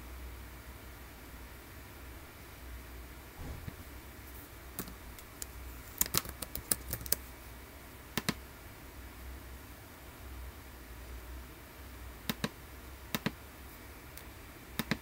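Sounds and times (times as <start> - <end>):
keyboard typing: 4.8 - 7.2.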